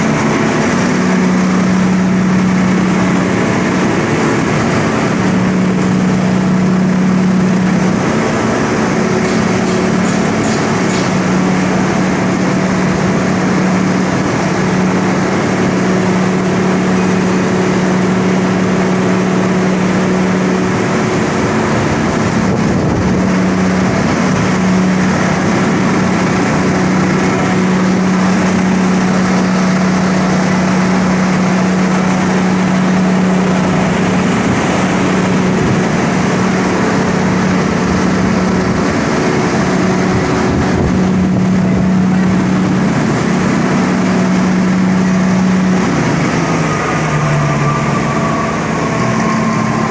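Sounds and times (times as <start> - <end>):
wood grinder machine running: 0.0 - 49.9.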